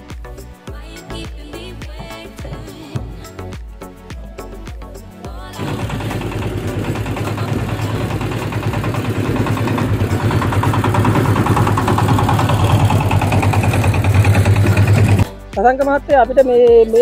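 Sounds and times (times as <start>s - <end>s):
diesel tractor engine running: 5.6s - 15.3s.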